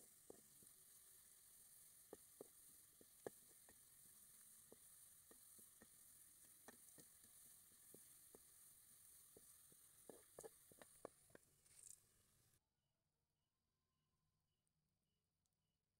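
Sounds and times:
onions sizzling in oil: 0.0s - 11.9s.

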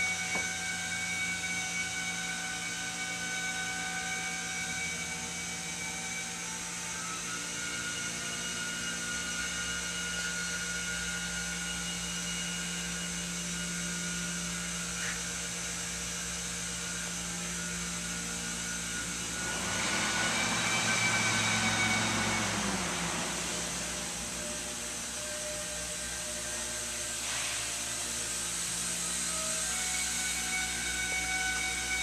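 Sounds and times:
textile machinery humming: 0.0s - 32.0s
rushing whir: 16.5s - 32.0s.

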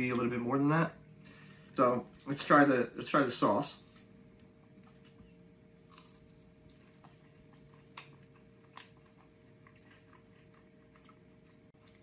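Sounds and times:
faint chewing: 3.8s - 12.0s.

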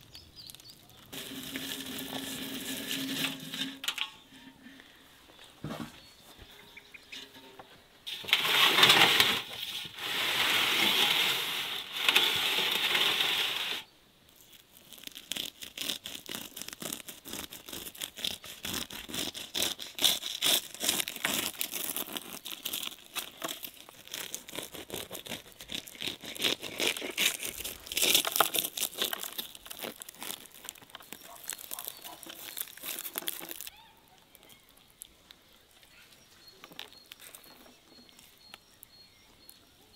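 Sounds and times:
knife sawing crisp crust: 15.2s - 23.0s, 23.6s - 29.5s.

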